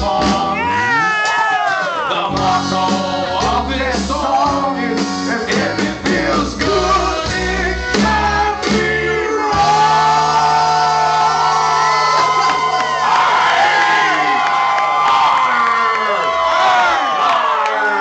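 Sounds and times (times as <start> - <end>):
men singing: 0.0 - 1.0, 1.7 - 12.2
live rock band playing: 0.0 - 1.1, 1.9 - 12.8.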